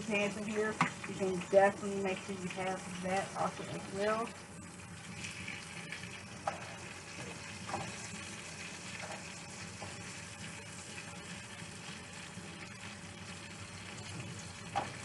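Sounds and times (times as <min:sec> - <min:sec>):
chicken sizzling in oil: 0:00.0 - 0:15.0
oil popping: 0:04.7 - 0:15.0.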